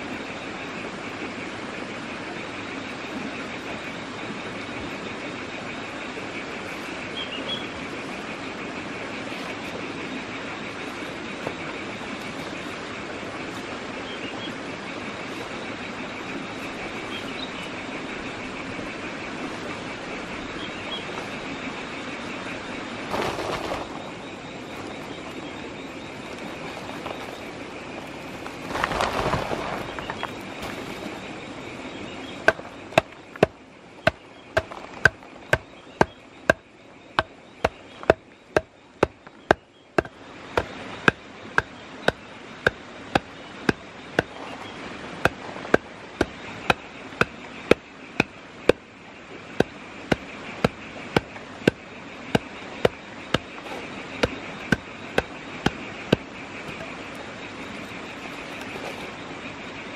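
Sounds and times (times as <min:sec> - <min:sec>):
insect drone: 0:00.0 - 0:59.9
rustling: 0:23.0 - 0:25.4, 0:26.1 - 0:31.4, 0:49.6 - 0:59.2
stick pounding clay: 0:32.4 - 0:44.4, 0:45.2 - 0:48.8, 0:49.6 - 0:57.0.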